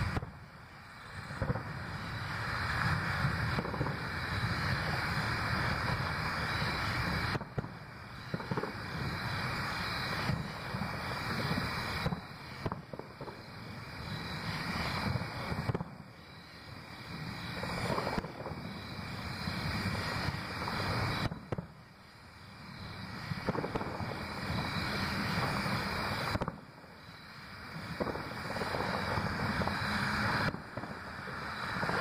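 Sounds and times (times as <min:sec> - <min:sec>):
distant fireworks rumble and crackle: 0:00.0 - 0:32.0
sharp firework reports: 0:00.0 - 0:32.0.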